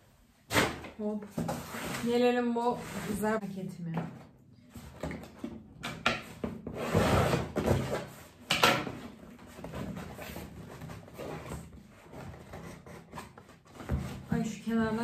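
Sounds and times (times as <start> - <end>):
cardboard rustling and scraping: 0.5 - 3.4, 6.2 - 15.0
cardboard rasp: 6.6 - 8.3, 9.4 - 15.0.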